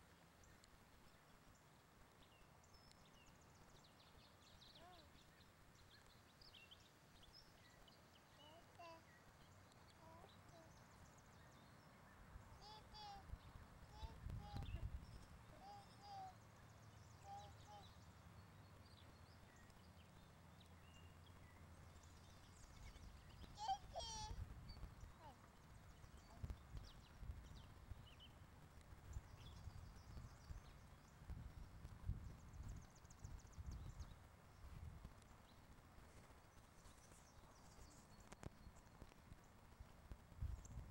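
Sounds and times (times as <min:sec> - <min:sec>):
faint high bird chirps: 0:02.2 - 0:28.3.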